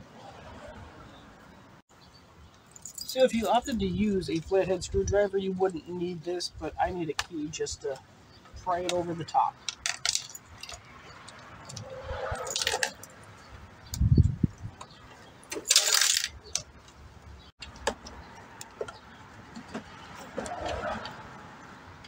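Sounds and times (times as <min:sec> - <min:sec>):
keys jangling: 0:02.7 - 0:03.5.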